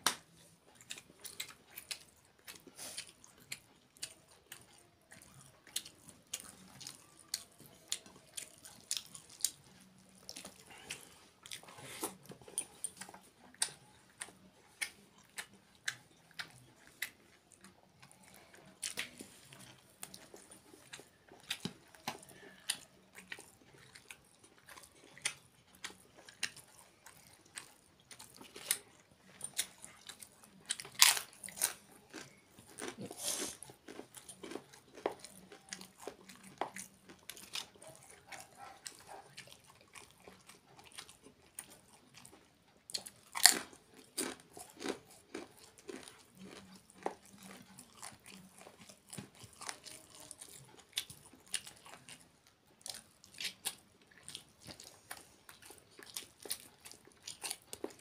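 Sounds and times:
man chewing and biting food: 0.0 - 58.0.

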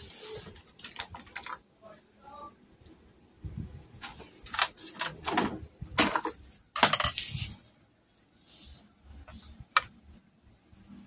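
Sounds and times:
crackling and rustling of parts: 0.0 - 1.8, 3.9 - 10.0.

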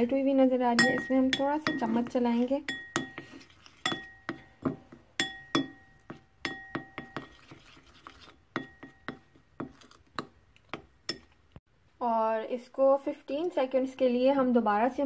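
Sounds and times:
metal spoon clinking against bowl: 0.8 - 7.4, 11.1 - 11.4.

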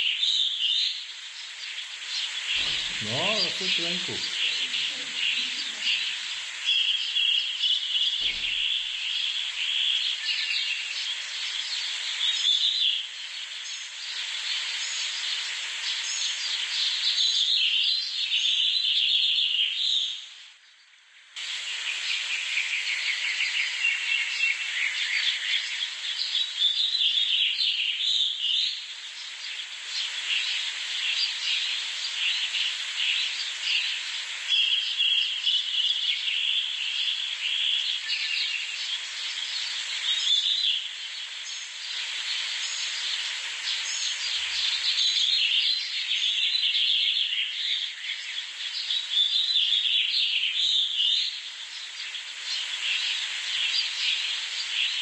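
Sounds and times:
nestlings begging chorus: 0.0 - 18.4
bird chirps: 0.0 - 20.8, 21.6 - 55.0.

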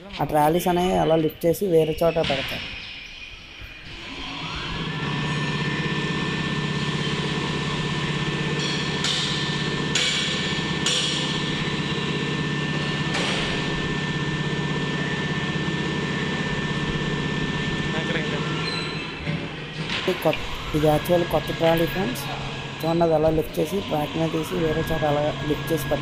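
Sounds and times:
crane hoist electric hum: 0.0 - 26.0
thin high whine: 19.9 - 26.0.

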